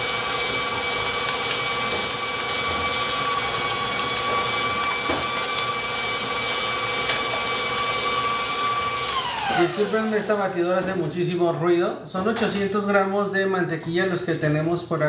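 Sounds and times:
stand mixer motor whine: 0.0s - 10.9s.

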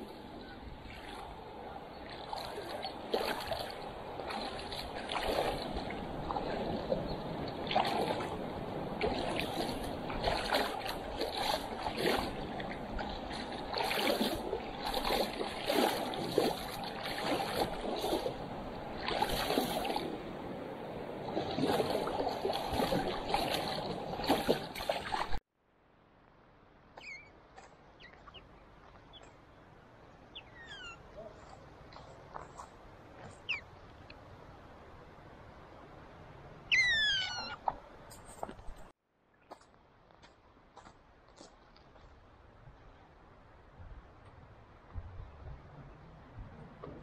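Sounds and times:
water rushing: 0.0s - 25.4s
river water splashing: 0.0s - 25.5s.

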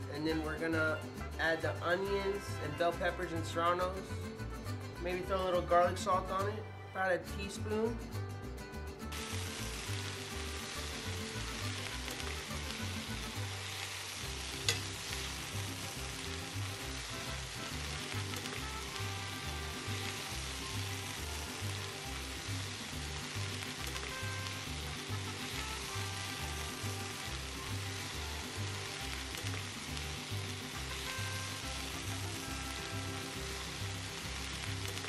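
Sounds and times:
vegetables sizzling in skillet: 9.1s - 35.0s
tongs stirring: 14.6s - 15.2s.

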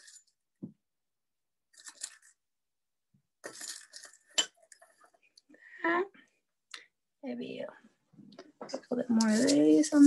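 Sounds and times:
candy decorations clinking in dish: 0.0s - 0.4s, 1.7s - 2.4s, 3.4s - 5.0s, 8.8s - 10.0s.

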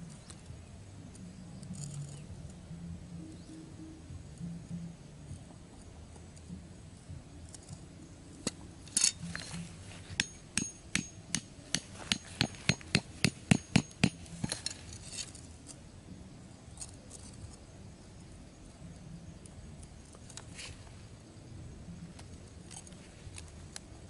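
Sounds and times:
hammer knocking stake into ground: 9.2s - 14.6s.

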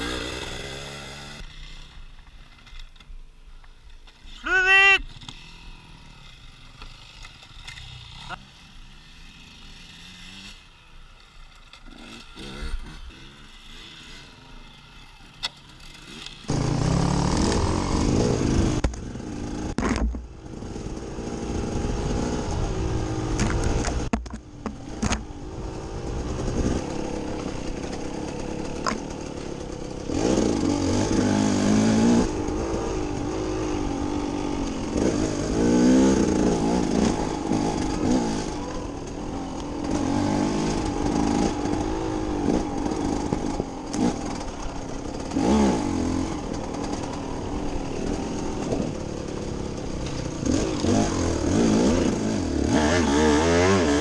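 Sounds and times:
motorcycle engine revving: 0.0s - 2.7s, 5.1s - 54.0s
distant dirt bikes: 0.0s - 54.0s
knocks from motorcycle: 19.8s - 20.3s, 23.4s - 25.2s.

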